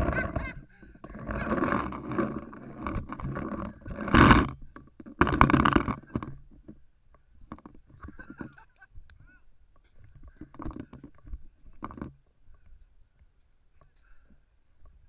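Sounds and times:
rumbling handling noise: 0:00.0 - 0:08.6, 0:09.8 - 0:12.3.

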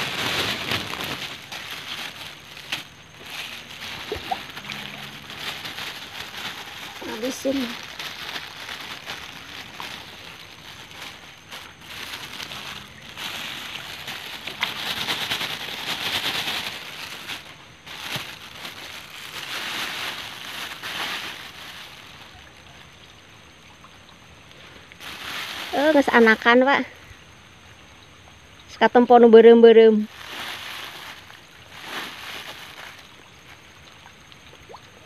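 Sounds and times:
fish splashing in water: 0:00.0 - 0:24.0.

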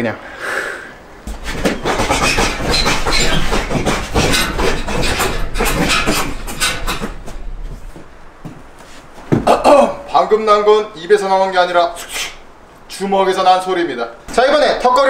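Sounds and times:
chains rattling: 0:01.3 - 0:08.1.

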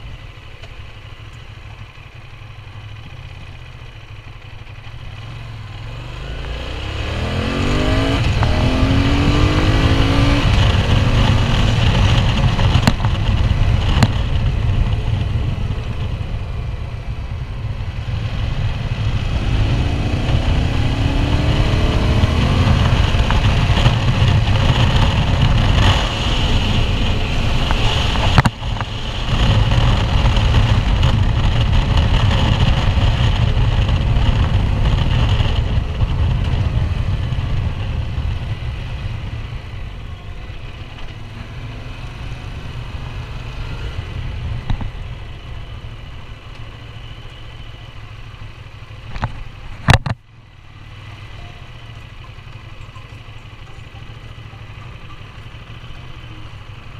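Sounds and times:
motorcycle engine accelerating: 0:00.0 - 0:56.9
wind noise: 0:06.8 - 0:40.8.

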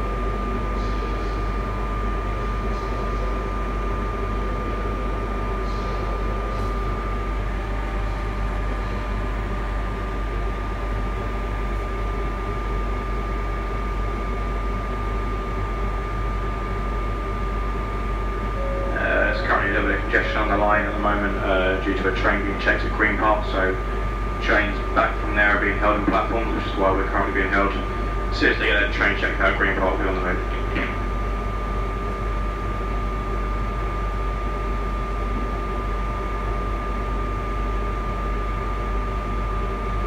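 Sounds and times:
high-pitched whine: 0:00.0 - 0:01.8, 0:14.2 - 0:31.1
train ventilation hum: 0:00.0 - 0:40.0.

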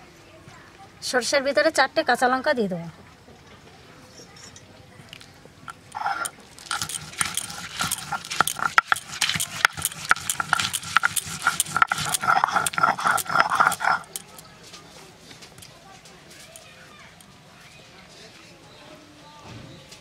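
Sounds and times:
stone grinding on stone slab: 0:05.7 - 0:14.4.

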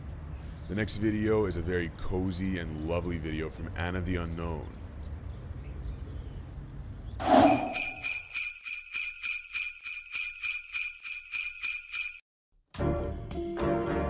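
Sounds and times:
sleigh bells shaken: 0:07.5 - 0:12.2.

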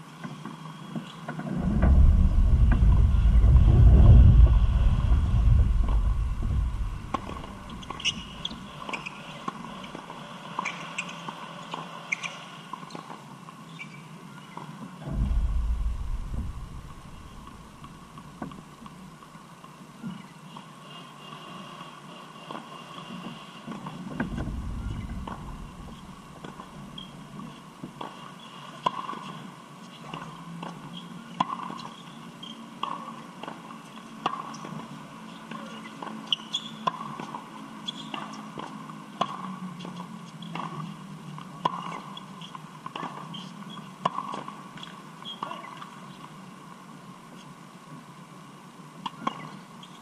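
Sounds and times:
brief low rumble: 0:01.5 - 0:08.5, 0:15.0 - 0:18.7, 0:24.2 - 0:27.1.

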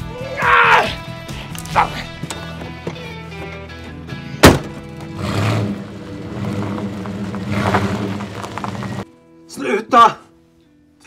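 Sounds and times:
background music: 0:00.0 - 0:11.0
truck door slamming: 0:04.4 - 0:05.2
truck engine running low: 0:04.9 - 0:09.0.

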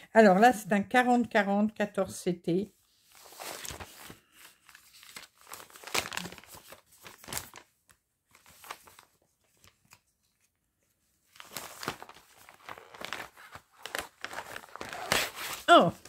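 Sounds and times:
plastic packaging crinkling: 0:03.2 - 0:07.7, 0:11.3 - 0:15.7.

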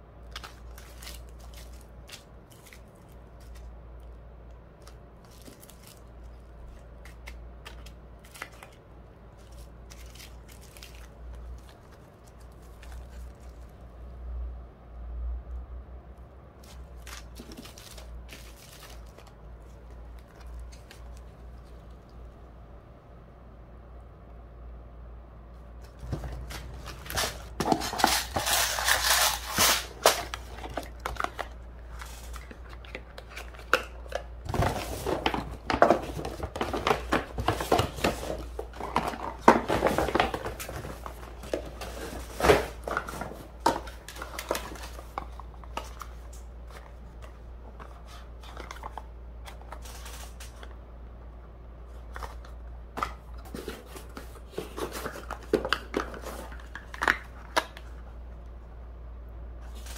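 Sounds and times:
plastic packaging crinkling: 0:00.2 - 0:03.7, 0:04.8 - 0:13.8, 0:16.6 - 0:21.9, 0:25.8 - 0:47.3, 0:48.4 - 0:50.7.

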